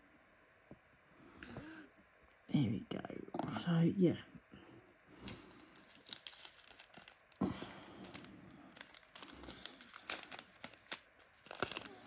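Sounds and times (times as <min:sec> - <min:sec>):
plastic bag crinkling: 0:05.2 - 0:12.0.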